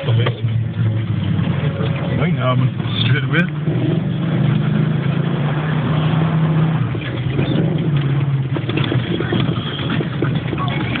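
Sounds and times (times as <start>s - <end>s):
car engine at low revs: 0.0s - 11.0s
knocks and rattles: 6.5s - 11.0s.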